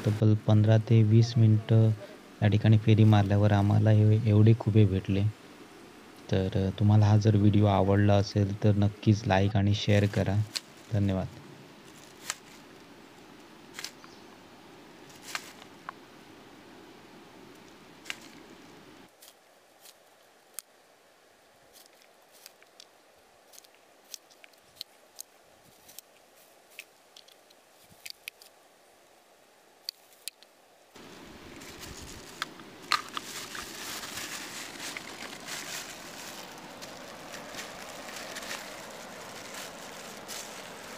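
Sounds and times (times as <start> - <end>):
plastic bag crinkling: 31.0 - 40.9.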